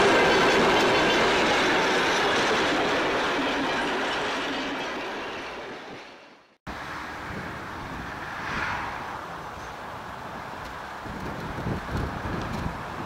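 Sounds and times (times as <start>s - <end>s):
train carriages rolling on track: 0.0s - 6.6s
wind buffeting microphone: 7.2s - 13.0s.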